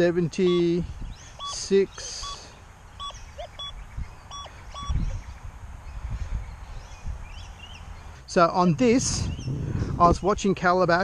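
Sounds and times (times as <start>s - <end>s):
metal detector beeps: 0.4s - 0.8s, 1.4s - 2.4s, 3.0s - 5.0s.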